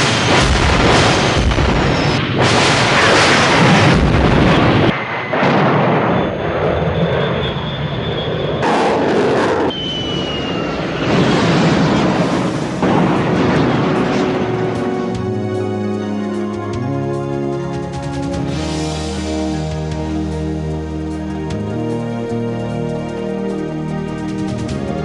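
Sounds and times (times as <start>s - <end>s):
explosions: 0.0s - 15.3s
jet aircraft: 0.0s - 25.0s.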